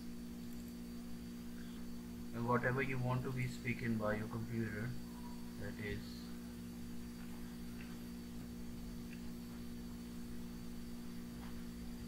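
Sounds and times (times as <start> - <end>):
faint hiss: 0.0 - 12.0
low hum: 0.0 - 12.0.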